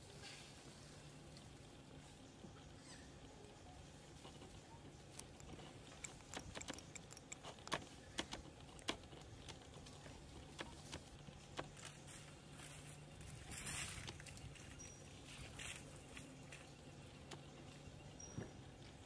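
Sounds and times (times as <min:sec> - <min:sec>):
leaf rustling: 0:10.8 - 0:16.8.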